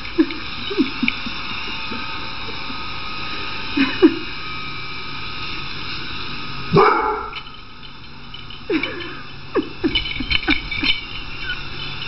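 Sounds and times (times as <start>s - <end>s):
vacuum cleaner motor humming: 0.0s - 12.0s
dog barking: 6.7s - 7.4s
dog yelping: 6.7s - 7.4s.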